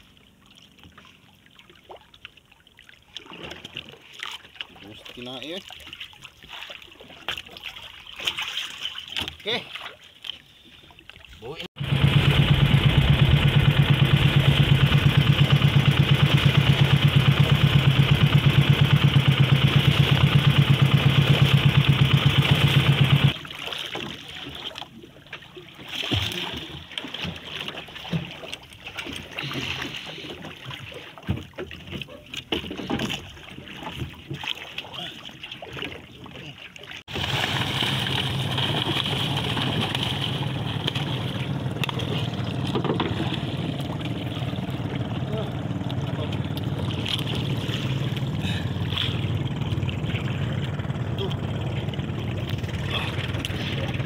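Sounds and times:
water sloshing and splashing: 0:00.0 - 0:54.0
boat engine pulsing: 0:11.4 - 0:54.0.

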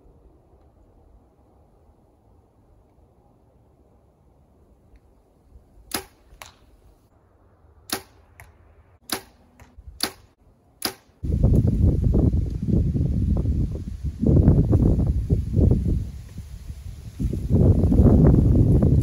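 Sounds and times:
arrow striking target: 0:05.9 - 0:06.8, 0:07.9 - 0:11.2.

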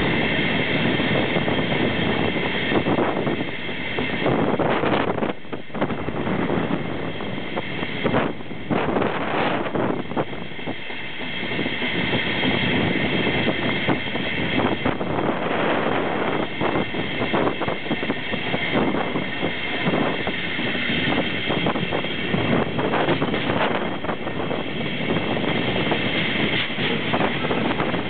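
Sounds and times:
steady high whine: 0:00.0 - 0:28.0
wind rushing over microphone: 0:00.0 - 0:28.0
train wheels clattering: 0:07.6 - 0:28.0.

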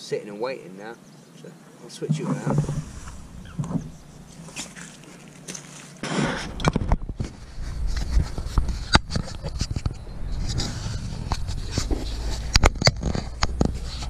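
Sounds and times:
low rumble: 0:02.5 - 0:04.6, 0:06.4 - 0:13.8.

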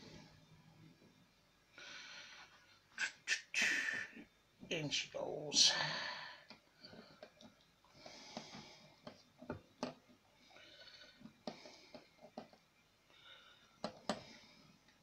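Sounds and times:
soft breathing: 0:01.7 - 0:03.0, 0:05.7 - 0:09.5, 0:10.2 - 0:15.0.

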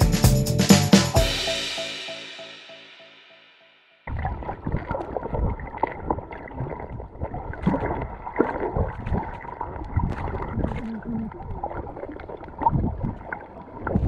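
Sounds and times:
muffled underwater sloshing: 0:04.1 - 0:14.0.

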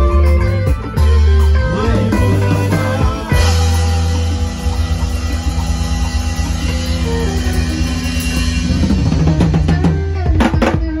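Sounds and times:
live band playing: 0:00.0 - 0:11.0.

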